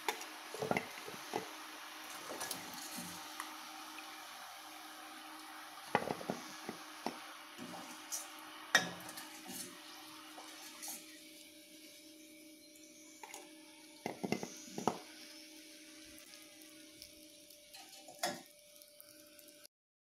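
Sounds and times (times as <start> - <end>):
hot oil sizzling: 0.0 - 19.7.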